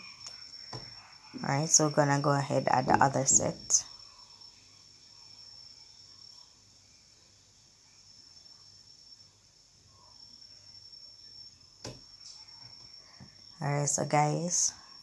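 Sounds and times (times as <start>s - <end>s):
faint high-pitched whine: 0.0s - 15.0s.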